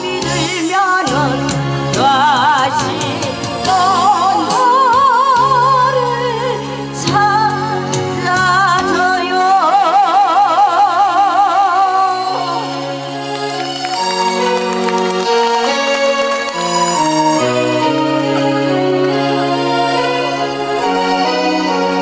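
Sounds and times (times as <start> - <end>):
instrumental accompaniment: 0.0 - 9.8, 11.0 - 22.0
woman singing with vibrato: 0.0 - 12.9.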